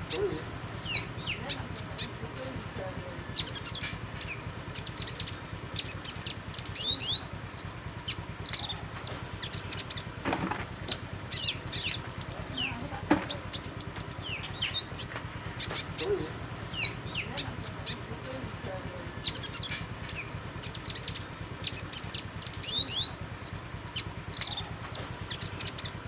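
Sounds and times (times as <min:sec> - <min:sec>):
bird twittering high chirps: 0:00.0 - 0:26.0.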